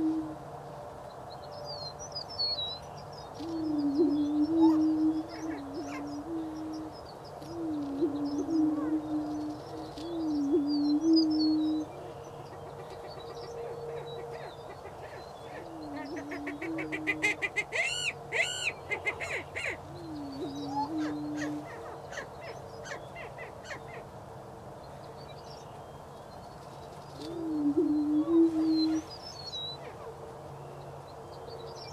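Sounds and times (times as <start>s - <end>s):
faint low drone: 0.0s - 2.6s, 3.2s - 17.4s.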